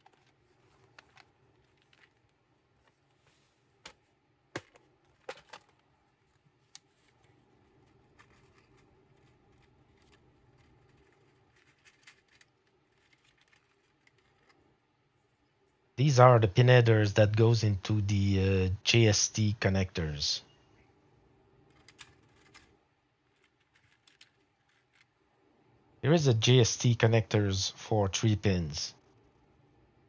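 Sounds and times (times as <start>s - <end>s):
plastic box clicks and knocks: 3.9s - 5.8s
rustling of metal terminals: 6.8s - 14.6s.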